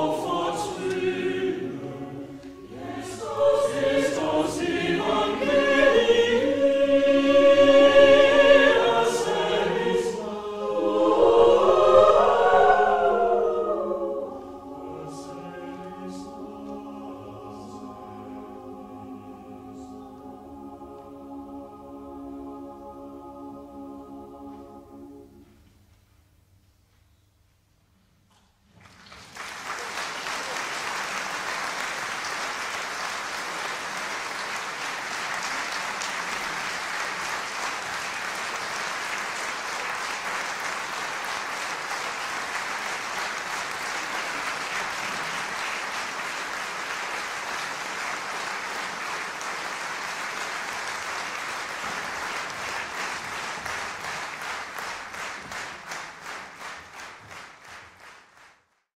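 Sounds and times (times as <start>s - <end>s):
rhythmic unison clapping: 0.0s - 19.1s, 28.8s - 58.8s
audience applauding: 28.8s - 58.8s.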